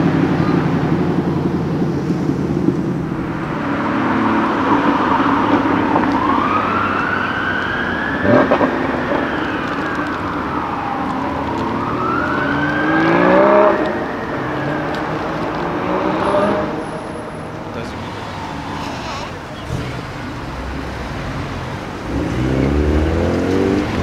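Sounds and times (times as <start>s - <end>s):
car engine accelerating: 0.0s - 24.0s
street traffic: 0.0s - 24.0s
siren wailing: 3.3s - 19.6s.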